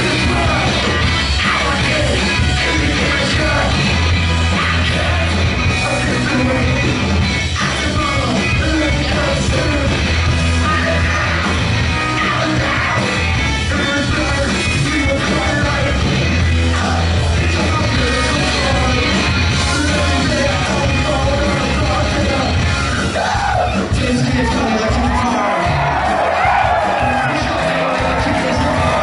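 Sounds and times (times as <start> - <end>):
drums: 0.0 - 29.0
electric bass: 0.0 - 29.0
electric guitar: 0.0 - 29.0
singer shouting and singing: 0.0 - 29.0.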